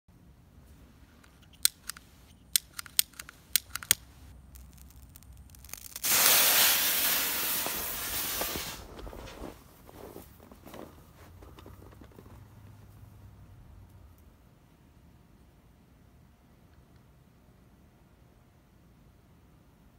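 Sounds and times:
flare hissing: 4.7s - 9.5s.

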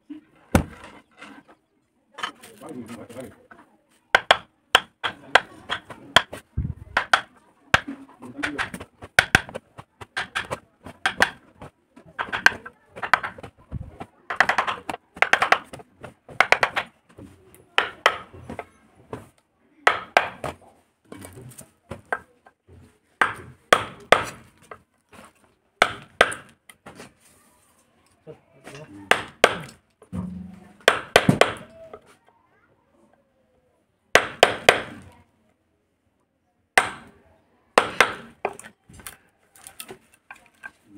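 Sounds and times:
chisel tapping into wood: 4.2s - 9.6s, 10.2s - 11.4s, 12.2s - 13.5s, 14.3s - 16.9s, 17.8s - 18.3s, 19.9s - 20.5s, 25.8s - 26.5s.

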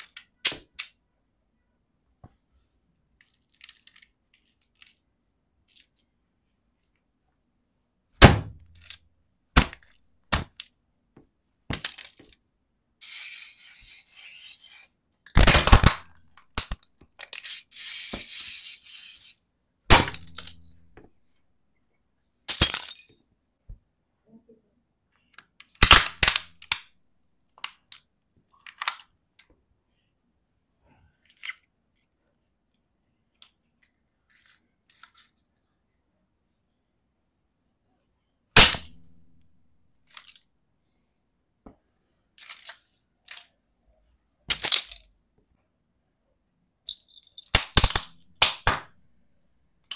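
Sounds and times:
plastic toys cracking underfoot: 47.4s - 48.9s.

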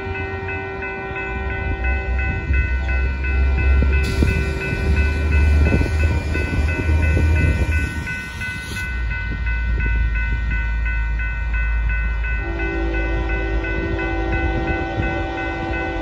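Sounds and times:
train horn chord: 0.0s - 7.0s, 12.4s - 16.0s
crossing warning bell ringing: 0.0s - 16.0s.

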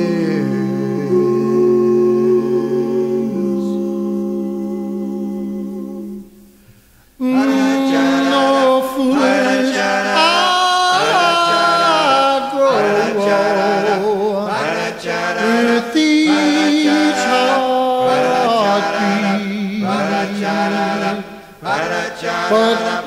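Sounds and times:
male a cappella group singing: 0.0s - 6.6s, 7.2s - 23.0s.

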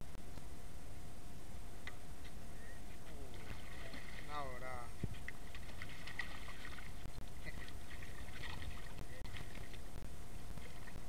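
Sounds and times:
fish splashing in water: 3.3s - 4.4s, 5.1s - 9.9s.

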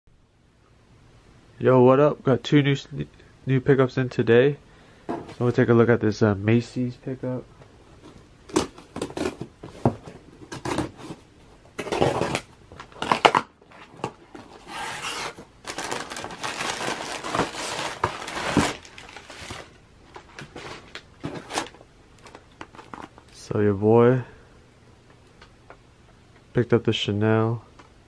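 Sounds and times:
packing paper rustling: 8.0s - 23.4s
knife cutting packing tape: 11.8s - 18.8s.

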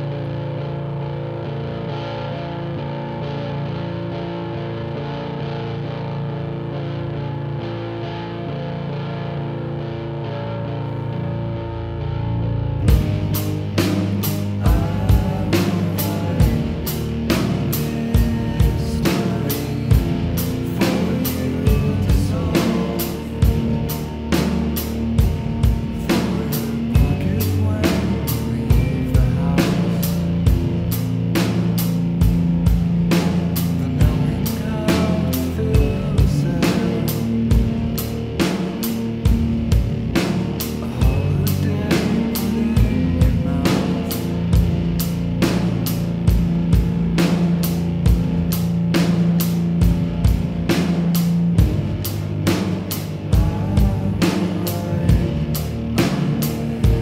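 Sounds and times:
rock music: 0.0s - 57.0s
sustained bass line: 0.0s - 57.0s
drum kit steady beat: 12.8s - 57.0s.

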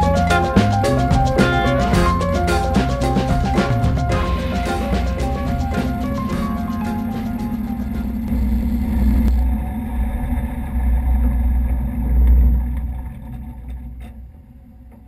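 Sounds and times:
radial aircraft engine idling: 0.0s - 9.7s.

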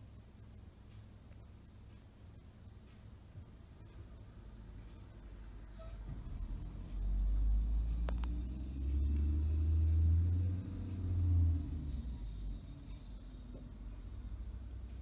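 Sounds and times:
truck engine revving: 6.3s - 14.4s.

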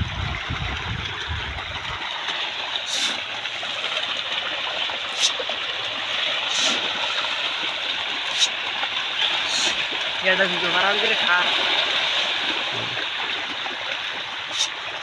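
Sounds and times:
fish thrashing and splashing: 0.0s - 15.0s.

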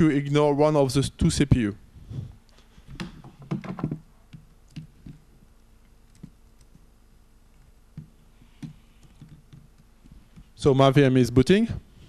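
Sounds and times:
laptop keyboard typing: 4.3s - 5.2s, 6.1s - 6.9s, 7.6s - 10.5s.

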